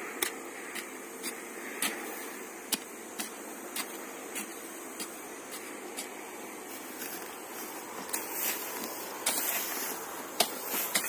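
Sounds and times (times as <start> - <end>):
steady background hiss: 0.0 - 11.0
hoe chopping into soil: 2.7 - 6.1, 8.0 - 11.0.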